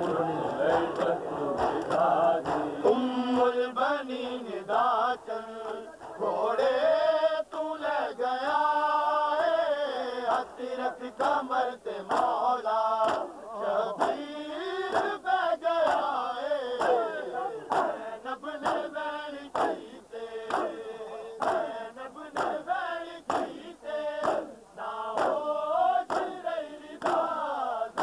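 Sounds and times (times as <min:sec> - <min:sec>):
hands slapping chests: 0:00.0 - 0:02.7, 0:12.1 - 0:12.4, 0:13.0 - 0:13.3, 0:15.8 - 0:16.1, 0:16.8 - 0:17.1, 0:17.7 - 0:18.0, 0:19.5 - 0:20.8, 0:22.3 - 0:22.6, 0:23.3 - 0:23.6, 0:24.2 - 0:24.5, 0:25.2 - 0:25.4, 0:26.1 - 0:26.4
men chanting in chorus: 0:00.0 - 0:28.0.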